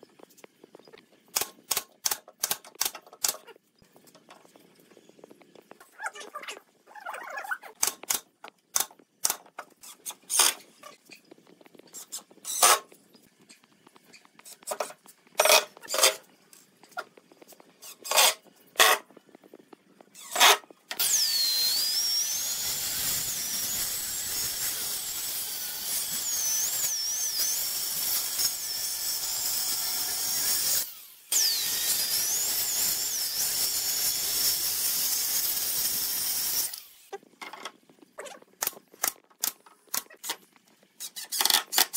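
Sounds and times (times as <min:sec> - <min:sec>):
circular saw cutting wood: 0:11.9 - 0:12.9, 0:14.3 - 0:16.2, 0:17.8 - 0:19.1, 0:20.2 - 0:37.2.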